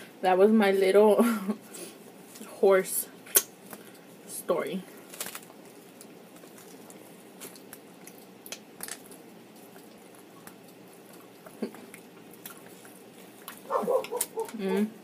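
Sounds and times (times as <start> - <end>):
mouth smacks and clicks: 3.3 - 3.5, 7.5 - 14.6
close-up chewing: 5.0 - 14.8.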